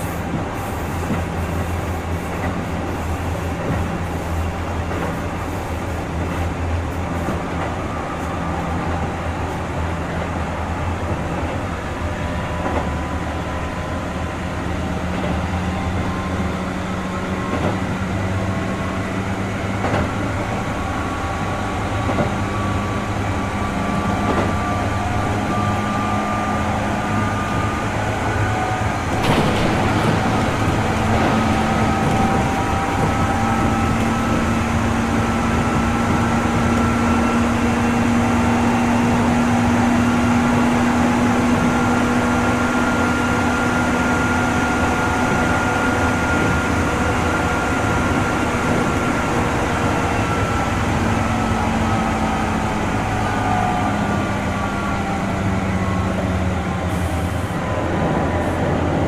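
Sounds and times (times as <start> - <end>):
track knocks: 0.0 - 10.4, 17.3 - 18.6, 19.7 - 20.8, 22.0 - 22.5, 24.0 - 24.7, 28.4 - 37.5
wheels rumbling on rail: 0.0 - 59.0
electric train motor whine: 3.9 - 59.0.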